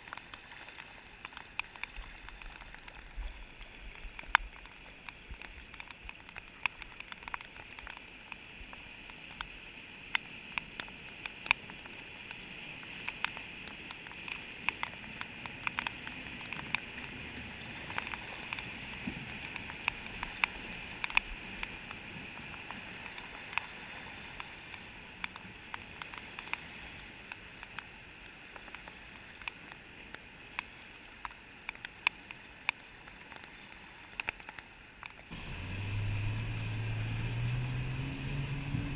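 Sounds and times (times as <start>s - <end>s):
flooded river rushing: 0.0s - 26.5s, 34.0s - 38.9s
faint vehicle engine: 35.3s - 38.9s.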